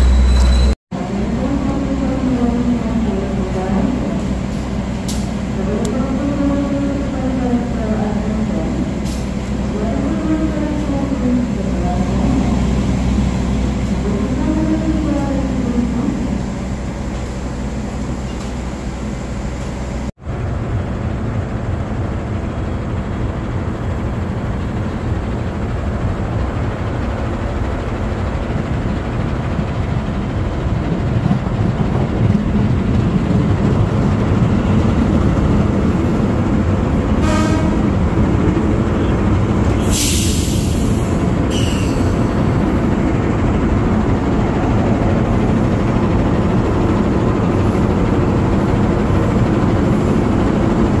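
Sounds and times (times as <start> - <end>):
train rumbling past: 0.0 - 51.0
train horn blast: 37.2 - 38.0.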